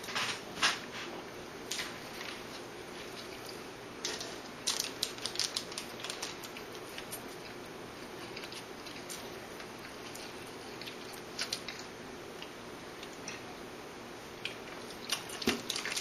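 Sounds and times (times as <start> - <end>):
eating clicks and crackles: 1.7 - 13.5, 14.3 - 16.0.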